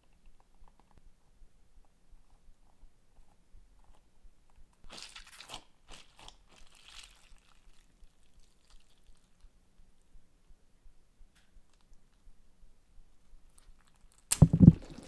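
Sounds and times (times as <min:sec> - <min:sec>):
stress ball squishing: 0:14.3 - 0:15.0.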